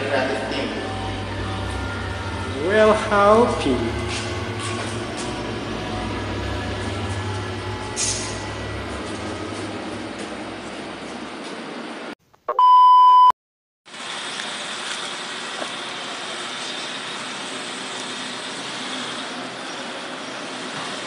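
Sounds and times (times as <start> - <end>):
electronic beep: 12.5 - 13.3.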